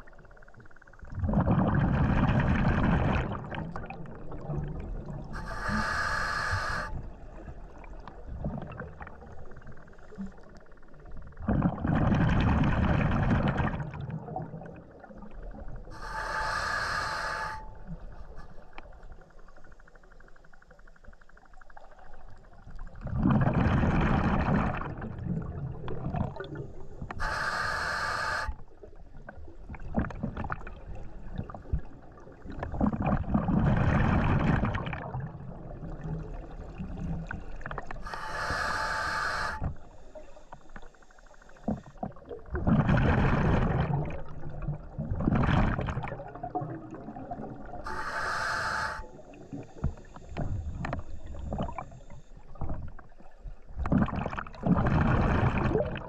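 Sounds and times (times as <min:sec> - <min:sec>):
exhaled bubbles rushing: 0:01.0 - 0:05.4, 0:06.9 - 0:10.4, 0:11.0 - 0:15.9, 0:22.7 - 0:27.0, 0:28.8 - 0:37.9, 0:41.7 - 0:48.0, 0:52.5 - 0:56.0
regulator hiss on inhale: 0:05.3 - 0:07.1, 0:15.9 - 0:19.8, 0:26.7 - 0:28.7, 0:38.0 - 0:42.0, 0:47.8 - 0:52.6.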